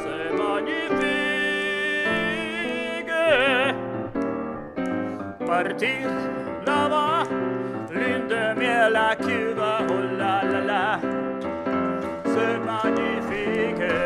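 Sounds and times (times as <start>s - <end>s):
tenor singing with vibrato: 0.0s - 3.9s, 12.0s - 14.0s
piano accompaniment: 0.0s - 14.0s.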